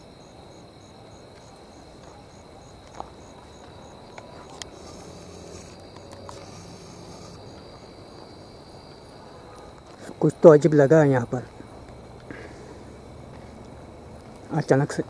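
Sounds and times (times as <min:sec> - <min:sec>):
cricket chirping: 0:00.0 - 0:15.0
faint rustles: 0:02.8 - 0:07.8
high-pitched insect drone: 0:03.2 - 0:14.0.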